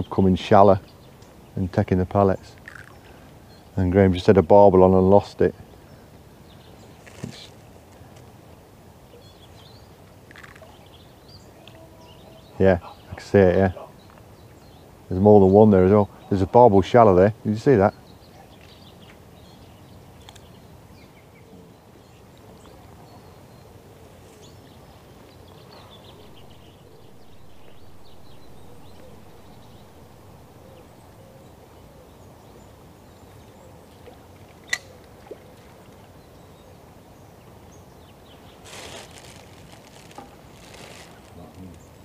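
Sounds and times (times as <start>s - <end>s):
faint bird chirps: 9.0s - 15.0s, 17.8s - 42.0s.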